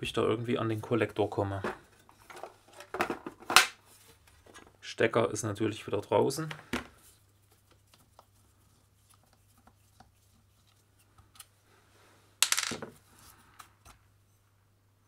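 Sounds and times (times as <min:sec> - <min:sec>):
tools clattering on workbench: 0:12.4 - 0:13.0.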